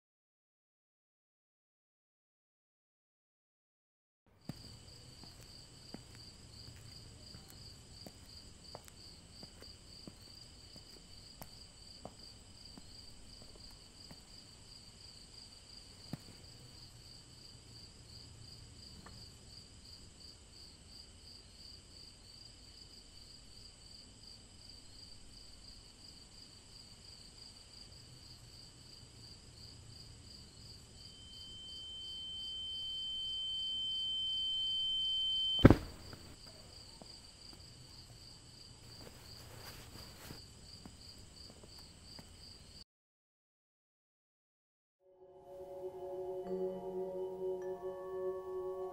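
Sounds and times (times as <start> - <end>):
crickets chirping: 4.4 - 42.8
high-pitched tone: 45.0 - 48.9.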